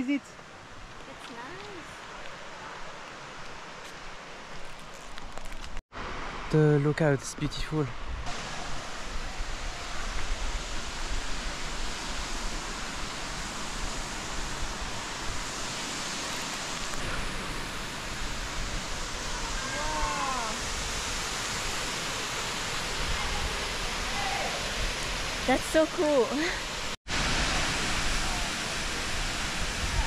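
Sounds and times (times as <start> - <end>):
waterfall roaring: 8.3 - 30.0.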